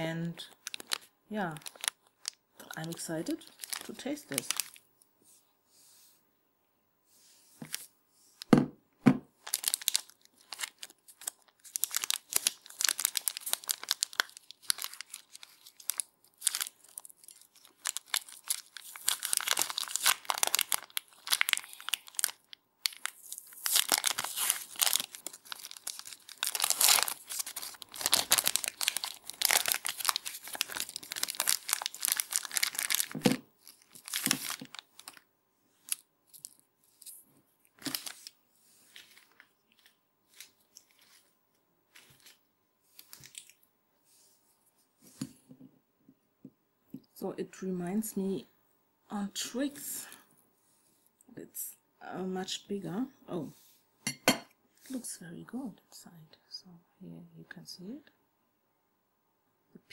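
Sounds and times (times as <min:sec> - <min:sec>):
plastic wrapper tearing: 0:00.4 - 0:04.8, 0:09.4 - 0:35.2, 0:35.8 - 0:41.3, 0:41.9 - 0:43.6.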